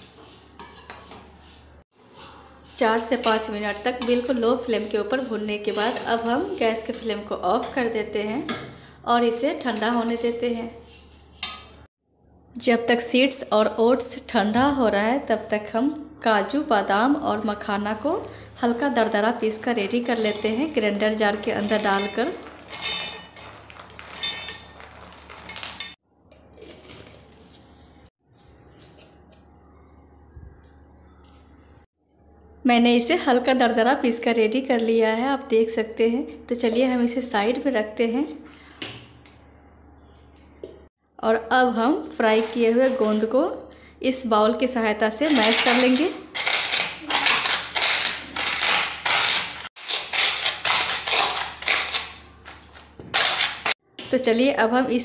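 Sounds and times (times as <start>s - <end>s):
steel bowl crushing crunchy puffs: 20.0s - 27.3s, 45.1s - 53.8s
steel jar clinking: 20.1s - 26.0s.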